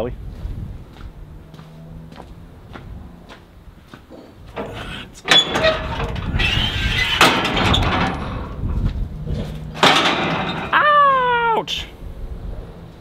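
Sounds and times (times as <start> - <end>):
metal clanking and scraping: 4.1 - 10.8
sharp metal bang: 9.8 - 10.8.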